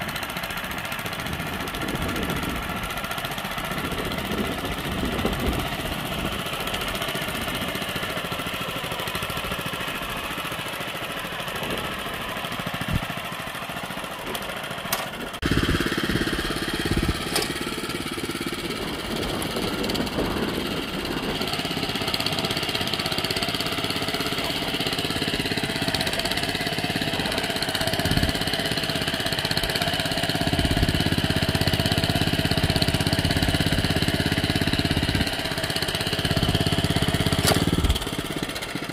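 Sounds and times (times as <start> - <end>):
tiller engine running: 0.0 - 38.9.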